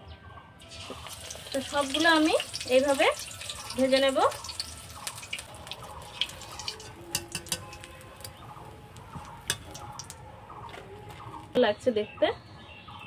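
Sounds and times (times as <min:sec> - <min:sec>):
metal spoon clinking on steel: 0:03.2 - 0:08.0, 0:09.4 - 0:10.1.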